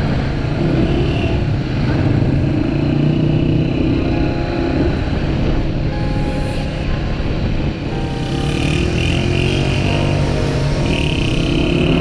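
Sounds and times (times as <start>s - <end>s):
motorcycle engine running: 7.9s - 12.0s.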